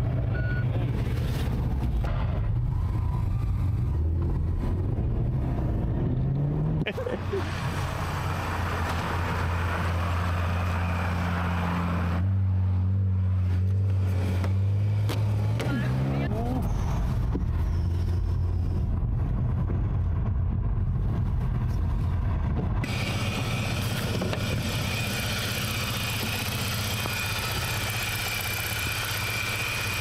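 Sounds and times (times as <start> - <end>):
car engine running: 13.2 - 30.0.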